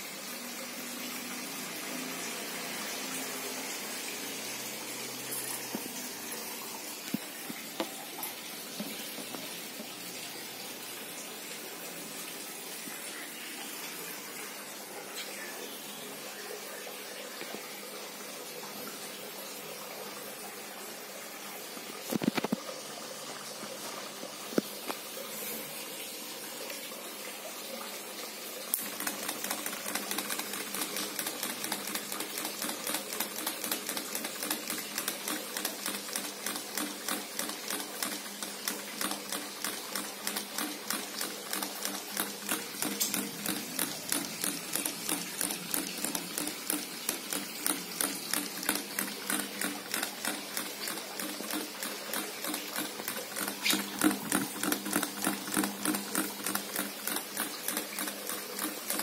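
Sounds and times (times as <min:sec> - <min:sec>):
ceiling fan rapid clicking: 0:28.7 - 0:59.0.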